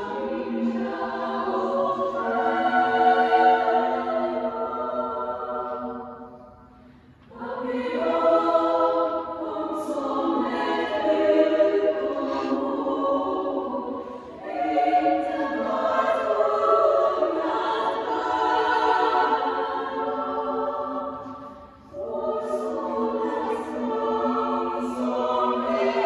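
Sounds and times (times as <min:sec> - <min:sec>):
women's choir singing a cappella: 0:00.0 - 0:26.0.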